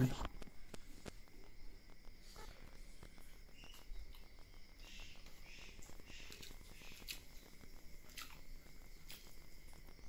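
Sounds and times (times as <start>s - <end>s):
faint high-pitched hum: 0.0s - 10.0s
small clicks of eating by hand: 3.6s - 4.4s, 5.2s - 9.8s.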